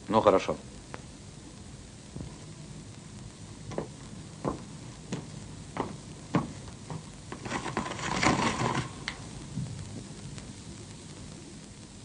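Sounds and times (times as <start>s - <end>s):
footsteps on hard floor: 3.7s - 8.5s
venetian blind rattling: 7.4s - 9.2s.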